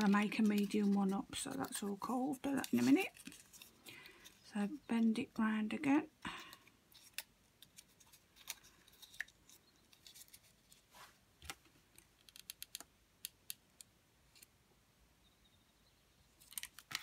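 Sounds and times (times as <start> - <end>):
paper card rustling and crinkling: 0.0 - 4.8, 6.3 - 12.7, 16.4 - 17.0.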